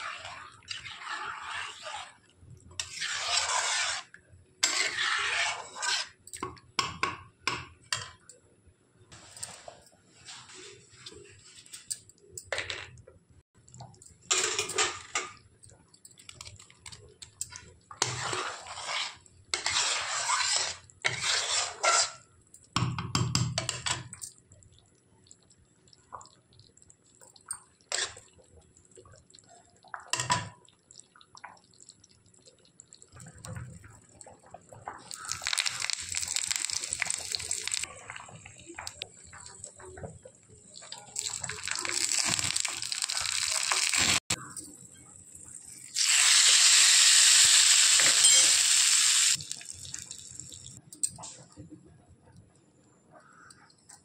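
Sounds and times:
oil sizzling with spices: 0.0s - 6.2s, 17.4s - 22.5s, 25.1s - 50.8s.

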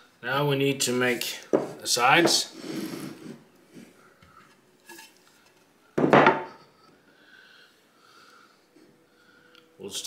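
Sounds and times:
wooden board knocking on workbench: 6.0s - 6.5s.

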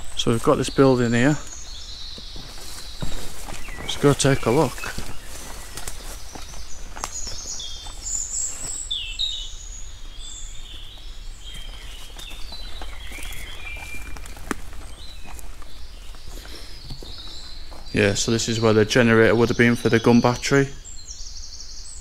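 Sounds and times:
footsteps: 0.0s - 8.9s, 10.7s - 18.7s
small birds singing: 0.0s - 22.0s.

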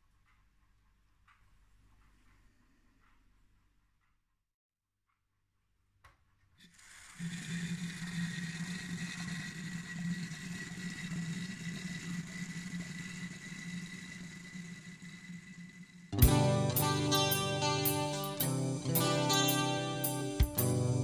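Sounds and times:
steam hissing and sputtering: 6.7s - 21.0s.

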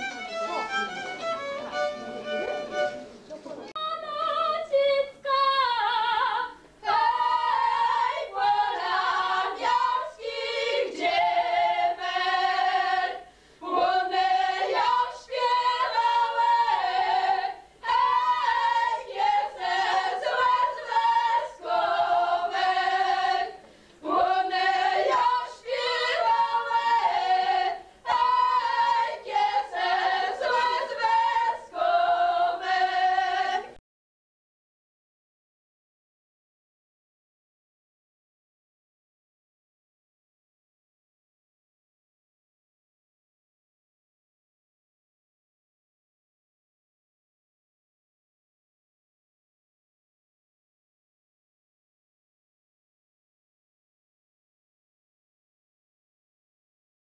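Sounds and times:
women singing a cappella: 3.7s - 33.8s.

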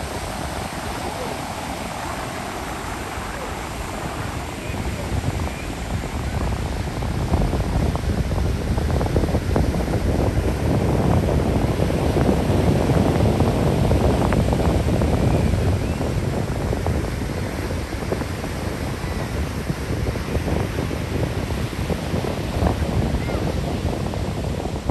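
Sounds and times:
ocean surf breaking: 0.0s - 11.0s
wind buffeting microphone: 0.0s - 24.9s.

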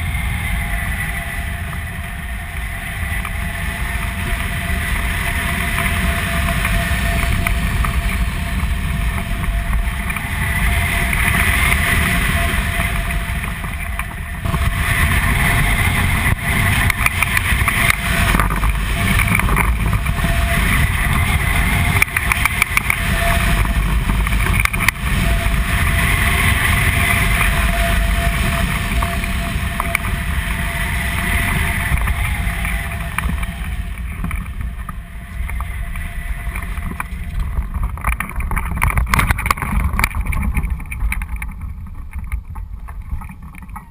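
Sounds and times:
wind rushing over microphone: 0.0s - 43.9s.

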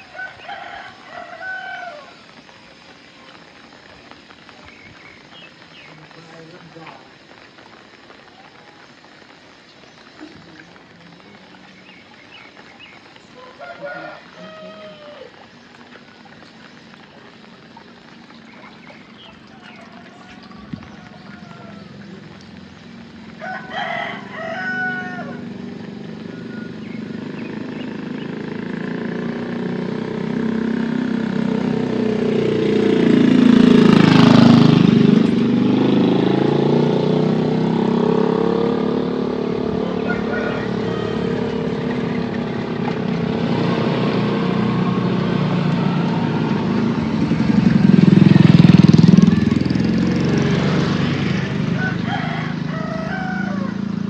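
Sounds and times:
rooster crowing: 0.0s - 2.3s, 13.4s - 15.6s, 18.7s - 22.5s, 23.3s - 26.9s, 39.0s - 50.4s, 51.4s - 54.0s
vehicle passing by: 13.4s - 54.0s.

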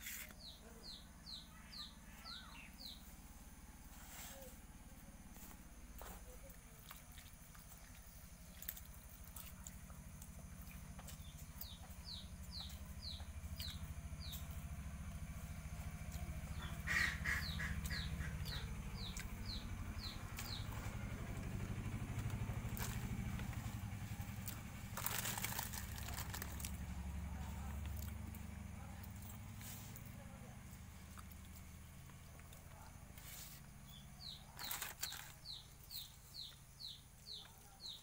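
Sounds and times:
bird chirping: 0.0s - 3.2s, 10.6s - 26.6s, 31.1s - 38.0s.

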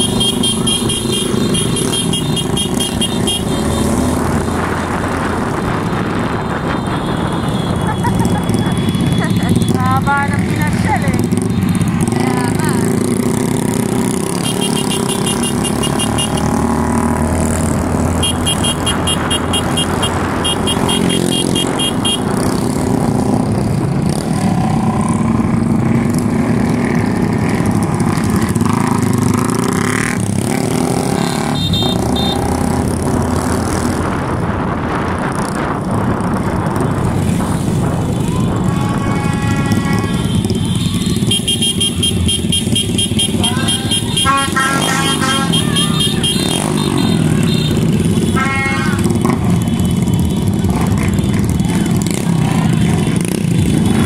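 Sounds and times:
vehicle horn: 0.0s - 4.0s, 14.3s - 16.7s, 18.1s - 22.4s, 31.1s - 32.6s, 38.4s - 51.3s
motorcycle engines running: 0.0s - 54.0s.

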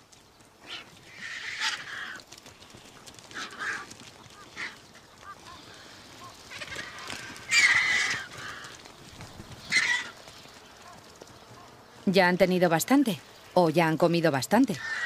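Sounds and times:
vultures calling harshly: 0.6s - 2.3s, 3.3s - 11.9s, 14.7s - 15.0s.

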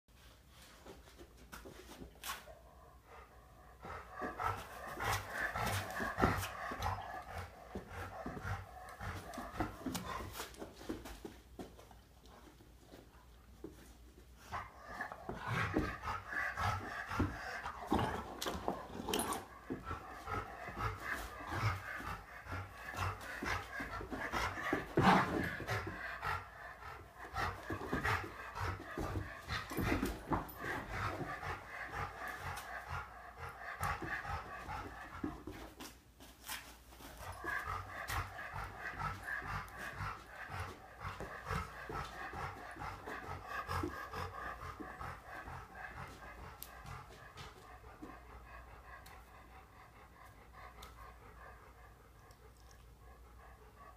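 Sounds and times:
dogs panting: 0.2s - 53.9s
paws scuffling on rug: 3.9s - 26.4s.

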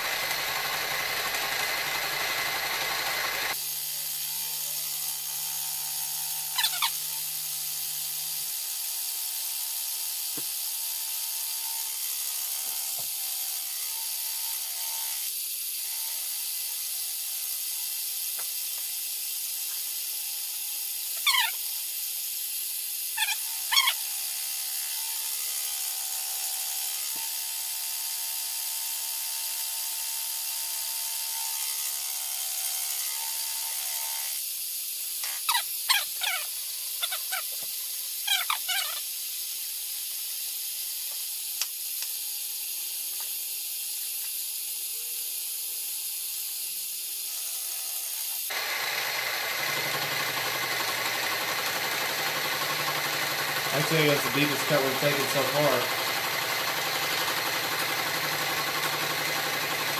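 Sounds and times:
mill motor and spindle whine: 0.0s - 19.0s, 44.2s - 59.9s.

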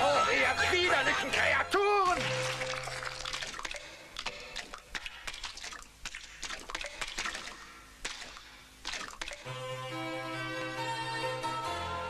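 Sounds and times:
sharp splats and clicks: 2.2s - 9.5s
wet squelching and dripping: 2.2s - 9.5s.

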